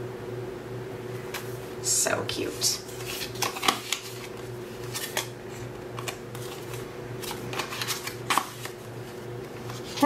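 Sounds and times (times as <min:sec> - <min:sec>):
paper cards sliding and rustling: 0:02.4 - 0:10.0.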